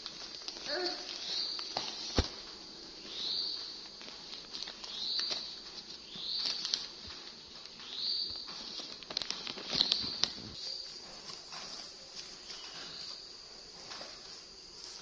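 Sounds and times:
plastic wrapping rustling and crinkling: 0.0s - 15.0s
sharp plastic crackles: 0.0s - 15.0s.

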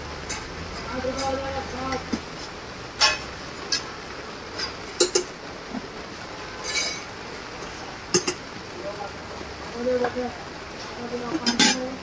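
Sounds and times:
steady background hiss: 0.0s - 12.0s
metal utensils clinking: 3.0s - 3.9s, 11.4s - 11.9s.

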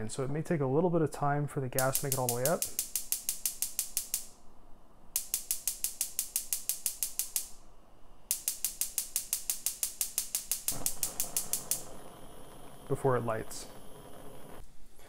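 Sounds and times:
gas burner rush: 1.8s - 4.2s, 8.3s - 15.0s
spark igniter clicking: 1.8s - 4.4s, 5.1s - 7.7s, 8.3s - 14.6s.

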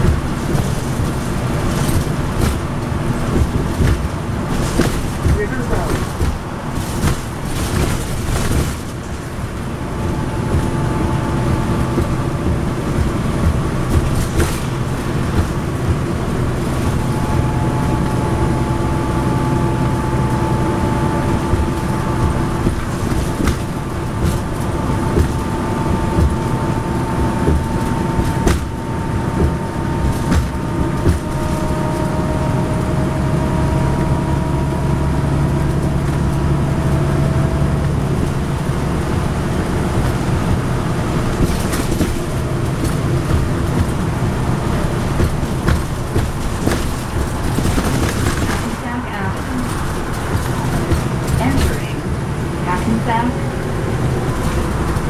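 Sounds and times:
rattles and clicks: 0.0s - 33.0s, 35.3s - 55.0s
bus engine hum with whine: 0.0s - 55.0s
road rumble: 0.0s - 55.0s.

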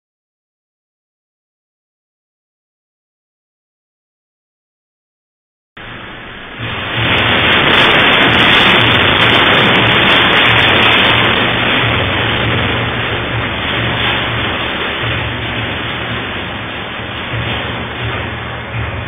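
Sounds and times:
earthquake rumble: 5.8s - 19.0s.

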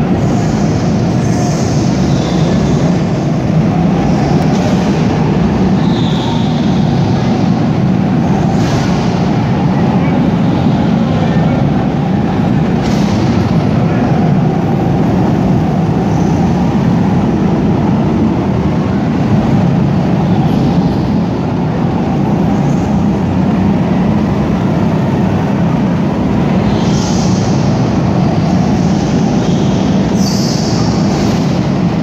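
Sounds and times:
go-kart engines droning: 0.0s - 32.0s
brief high squeals: 5.8s - 6.9s, 29.5s - 31.4s.

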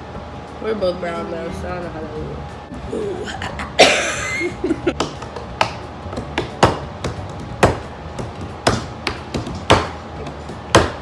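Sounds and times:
rhythmic hand claps and pats: 4.9s - 11.0s.

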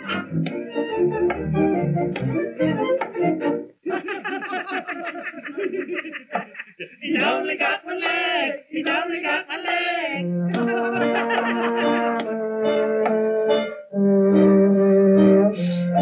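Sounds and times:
cartoon voices laughing in chorus: 3.8s - 7.4s, 10.5s - 12.3s.

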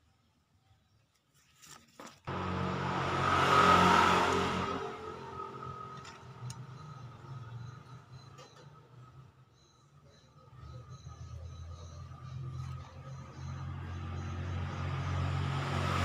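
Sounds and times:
motor vehicle passing by: 2.3s - 9.3s, 10.6s - 16.0s.

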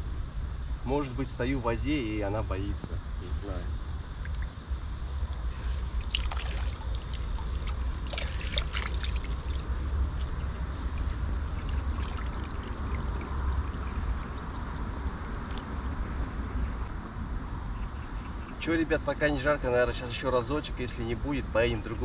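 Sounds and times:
small splashes: 5.4s - 16.0s
water dripping off a net: 5.4s - 16.0s.

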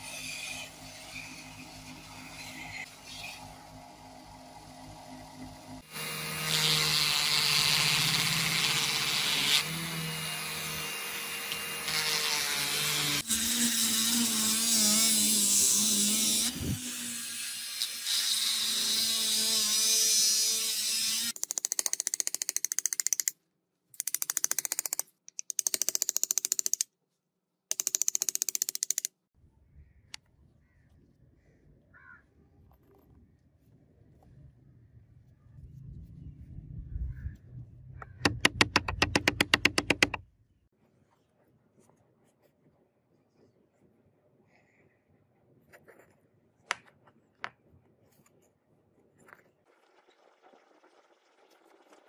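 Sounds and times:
rotary tool grinding wood: 5.9s - 21.4s, 38.3s - 40.2s.

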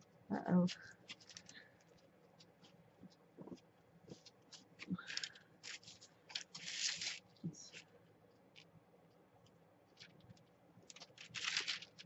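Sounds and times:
paper rustling: 1.0s - 7.9s, 9.9s - 12.0s.

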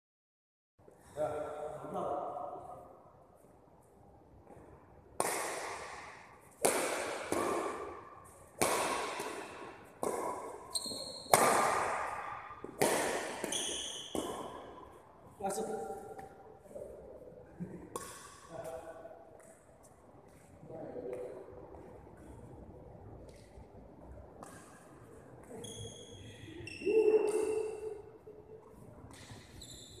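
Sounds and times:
racket hitting shuttlecock echoing: 4.5s - 15.0s, 17.6s - 19.7s, 24.3s - 26.2s, 26.9s - 28.2s
shoes squeaking on court floor: 10.6s - 11.5s, 13.4s - 14.7s, 25.4s - 27.8s, 29.1s - 30.0s.

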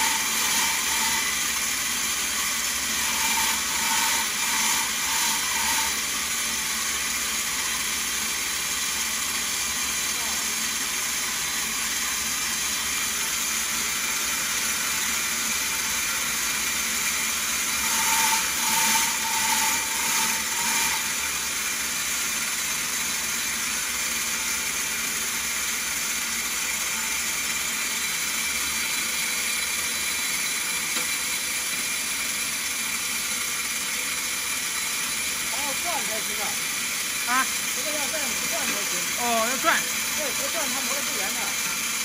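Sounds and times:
stone beads grinding in machine: 0.0s - 42.0s
water running from hose: 33.2s - 42.0s.

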